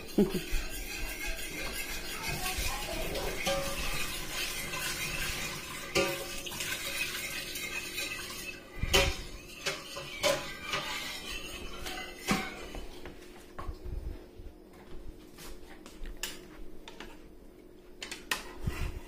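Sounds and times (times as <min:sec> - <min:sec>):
utensil clinking against pot: 0:00.0 - 0:12.9
utensil stirring liquid: 0:00.0 - 0:13.2.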